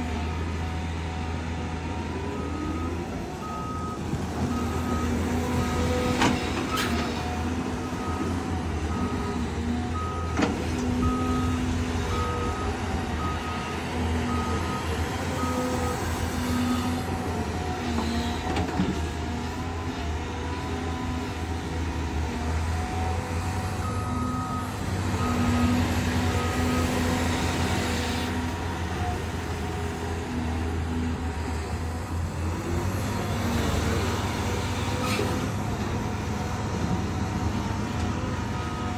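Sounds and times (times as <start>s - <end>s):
excavator diesel engine running: 0.0s - 38.9s
reversing alarm beeps: 2.3s - 5.9s, 7.8s - 17.1s, 23.8s - 27.5s.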